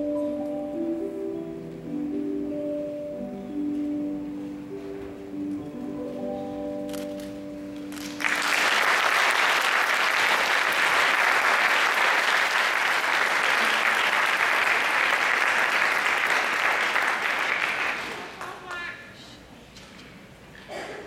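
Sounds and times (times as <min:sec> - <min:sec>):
music held notes: 0:00.0 - 0:08.5
audience applauding: 0:07.9 - 0:18.7.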